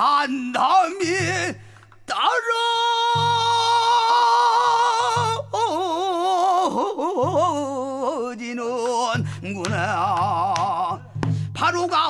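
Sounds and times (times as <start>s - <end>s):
person singing with vibrato: 0.0s - 12.0s.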